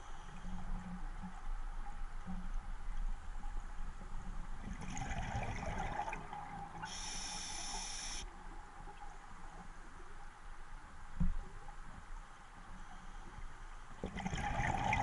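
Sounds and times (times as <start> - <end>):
exhaled bubbles rumbling: 4.5 - 6.9, 14.1 - 15.0
regulator inhale hiss: 6.8 - 8.2.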